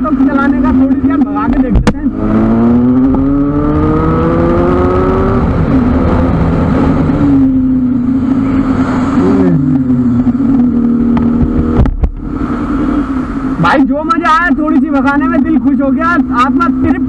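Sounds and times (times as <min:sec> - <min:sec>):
motorcycle engine accelerating: 0:00.0 - 0:13.8
wind noise on microphone: 0:00.5 - 0:13.6.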